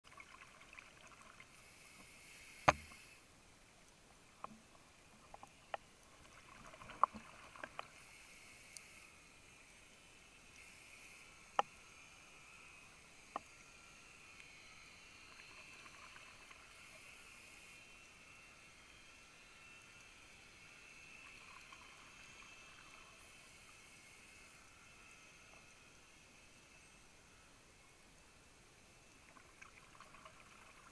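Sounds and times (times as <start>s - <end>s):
faint underwater hiss: 0.1s - 30.9s
reef clicks and snaps: 3.8s - 8.1s, 8.7s - 9.0s.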